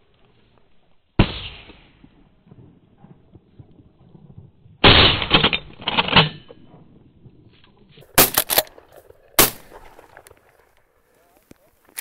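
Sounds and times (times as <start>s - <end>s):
shotgun blasts: 1.2s - 2.6s, 4.8s - 5.5s, 8.1s - 10.3s.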